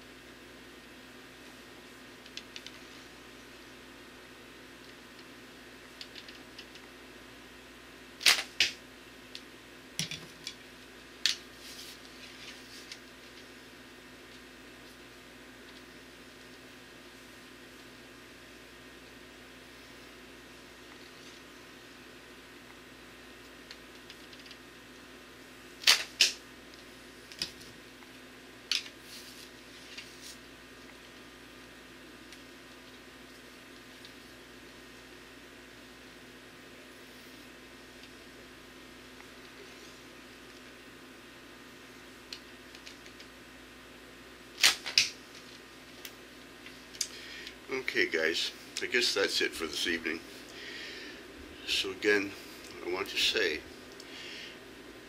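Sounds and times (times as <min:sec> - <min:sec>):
bowstring cracking on release: 0:25.8 - 0:26.4.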